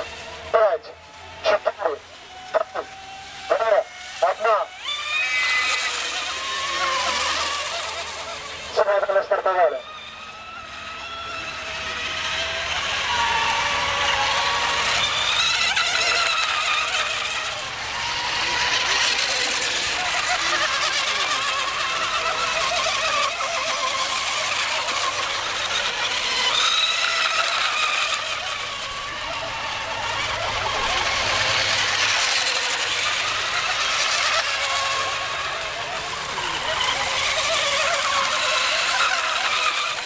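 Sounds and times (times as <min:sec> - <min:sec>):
racing boat motor whine: 0:00.0 - 0:40.0.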